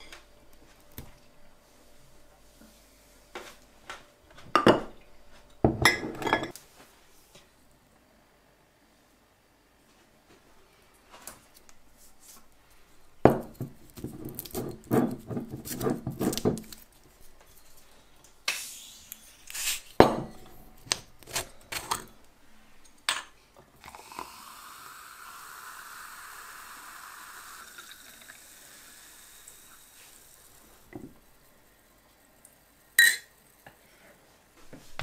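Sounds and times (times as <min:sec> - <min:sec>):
wine fizzing as poured: 0:23.8 - 0:30.9.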